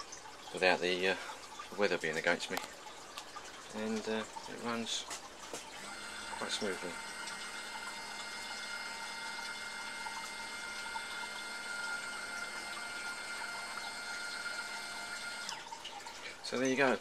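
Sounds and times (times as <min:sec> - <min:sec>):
camera slider motor whining: 0:05.8 - 0:15.6.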